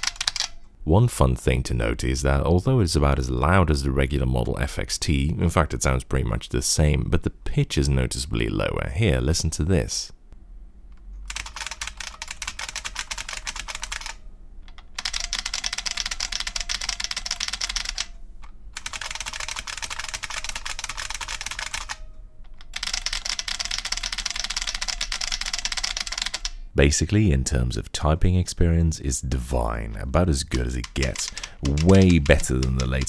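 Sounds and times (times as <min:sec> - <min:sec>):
fast clicky keyboard typing: 0:00.0 - 0:00.6, 0:11.3 - 0:18.1, 0:18.8 - 0:22.0, 0:22.6 - 0:26.6, 0:30.5 - 0:33.0.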